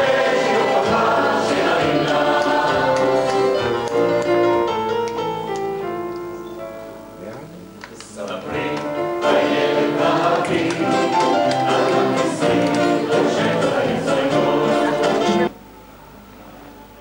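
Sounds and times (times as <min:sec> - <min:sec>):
mixed choir singing: 0:00.0 - 0:04.6, 0:08.4 - 0:15.5.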